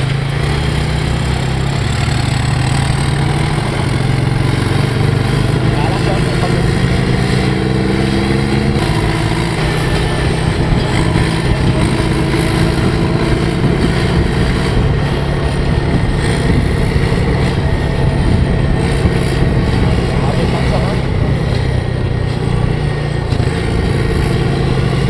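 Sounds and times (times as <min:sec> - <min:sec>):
tractor diesel engine under load: 0:00.0 - 0:25.0.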